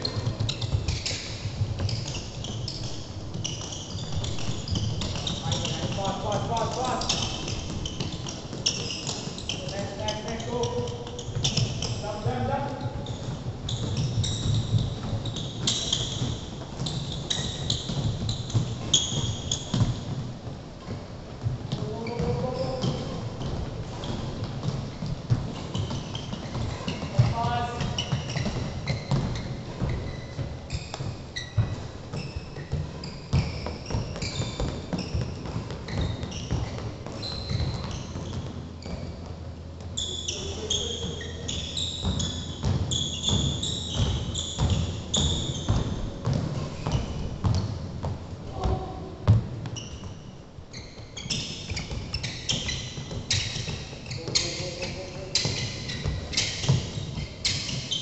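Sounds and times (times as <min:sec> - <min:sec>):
court shoes squeaking: 0:00.0 - 0:58.0.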